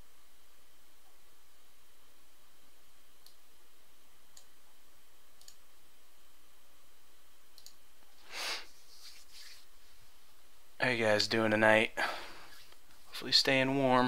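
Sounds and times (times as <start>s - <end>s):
faint computer mouse clicks: 5.4s - 5.6s, 7.6s - 7.8s.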